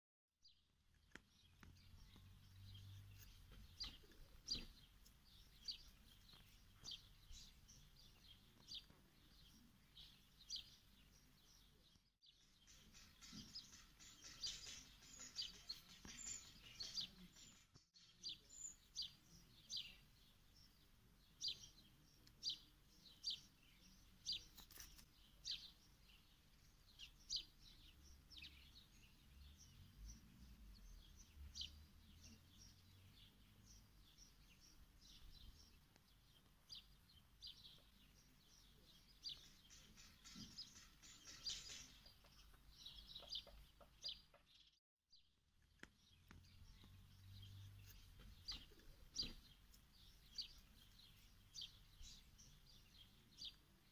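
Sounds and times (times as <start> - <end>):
small bird chirping: 0.4 - 53.9
faint outdoor ambience: 0.5 - 44.7, 45.4 - 53.9.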